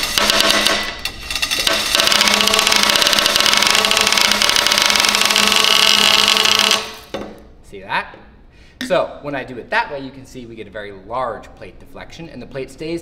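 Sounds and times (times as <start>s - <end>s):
ball bearings clattering: 0.0s - 7.2s.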